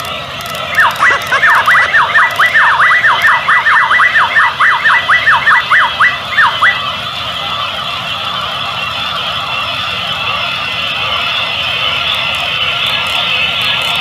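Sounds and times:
electronic warble siren: 0.6s - 13.5s
toys chattering: 0.7s - 6.8s.

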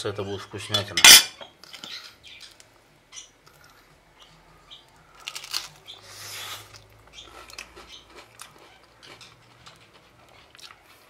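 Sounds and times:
person crunching pizza crust: 5.1s - 11.0s.

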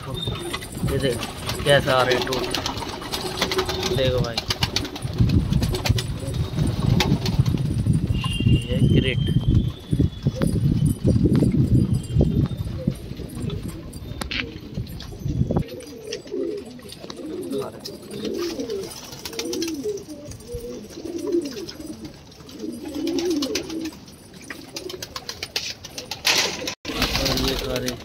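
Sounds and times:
pigeons cooing: 0.0s - 7.3s, 9.7s - 27.8s.

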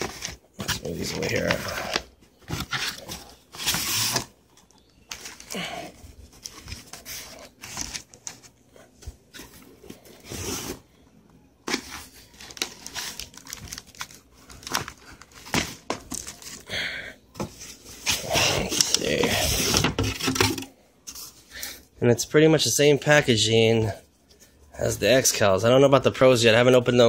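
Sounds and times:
plastic wrap crinkling: 11.8s - 16.7s.

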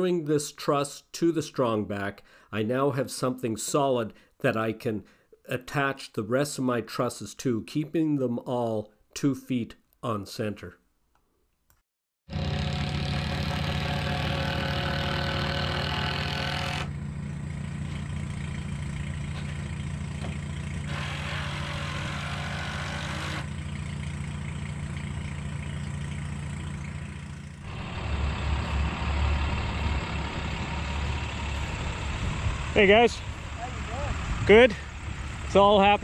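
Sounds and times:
engine low hum: 12.3s - 36.0s
truck engine idling: 12.3s - 36.0s.

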